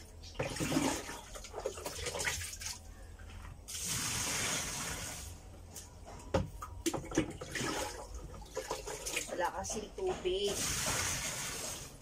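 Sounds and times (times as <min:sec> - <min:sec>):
water pouring into tub: 0:03.7 - 0:05.3, 0:10.6 - 0:12.0.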